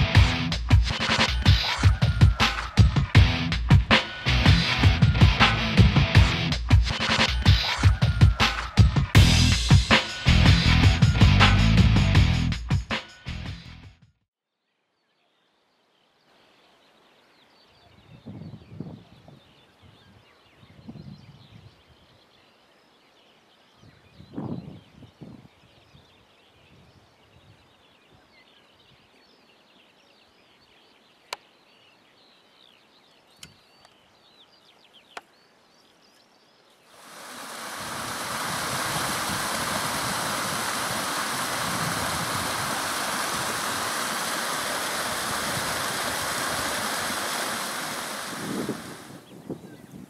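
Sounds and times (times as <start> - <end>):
faint bird chirping: 14.5 - 37.7, 46.9 - 50.0
steady rushing noise: 37.0 - 49.3.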